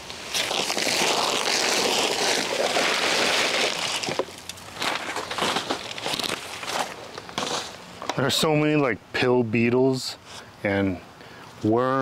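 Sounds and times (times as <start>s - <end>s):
plastic bag rustling: 0.0s - 7.9s.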